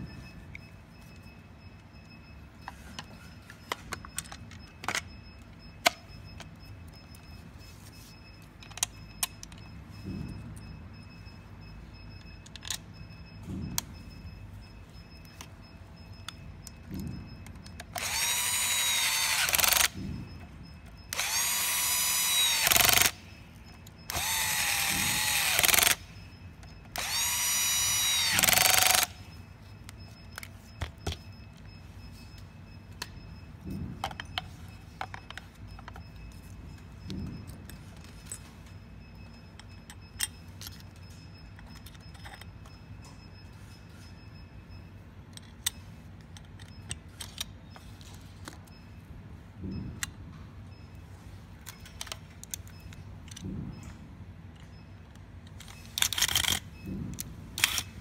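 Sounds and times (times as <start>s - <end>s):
electric screwdriver whining: 18.0s - 20.0s, 21.1s - 23.2s, 24.1s - 26.0s, 27.0s - 29.2s
plastic parts clicking: 45.3s - 48.7s, 51.6s - 53.5s.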